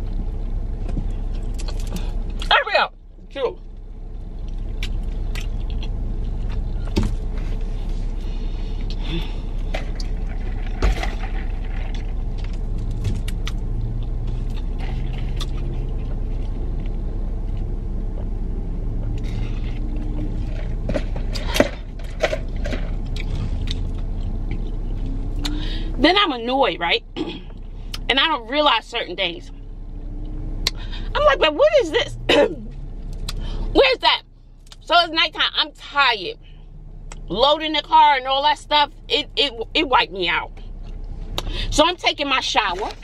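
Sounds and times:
low rumble inside car: 0:00.0 - 0:43.0
person chewing food: 0:04.4 - 0:07.7, 0:11.8 - 0:18.3, 0:22.4 - 0:25.6.

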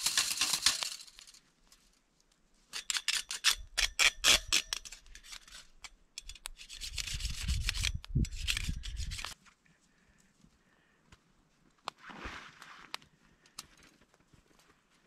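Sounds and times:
scraper rasping on grill grate: 0:06.5 - 0:09.4.

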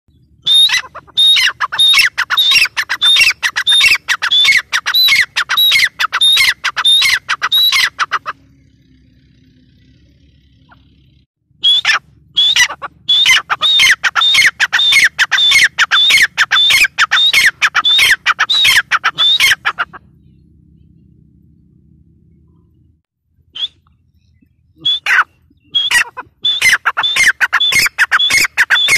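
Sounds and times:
francolin calling shrill notes: 0:00.4 - 0:08.4, 0:11.6 - 0:19.8, 0:24.8 - 0:28.9.

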